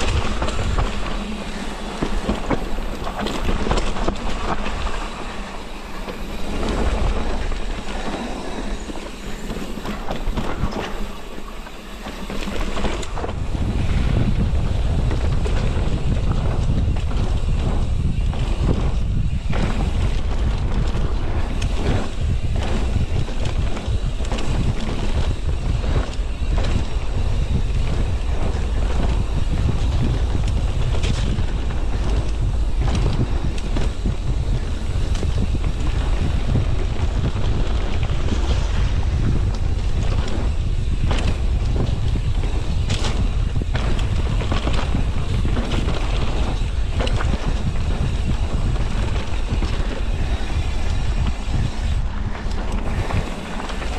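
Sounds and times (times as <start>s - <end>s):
wind buffeting microphone: 0.0s - 53.9s
bike knocks and rattles: 12.4s - 53.9s.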